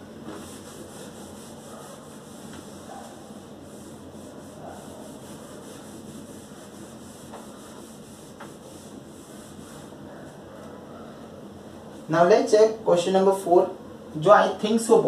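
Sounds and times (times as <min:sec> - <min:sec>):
low room hum: 0:00.0 - 0:15.0
duster rubbing on whiteboard: 0:00.2 - 0:10.4.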